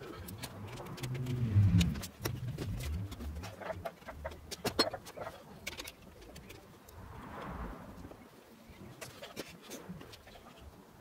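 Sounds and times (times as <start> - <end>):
low hum: 0.1 - 3.7, 6.8 - 8.4.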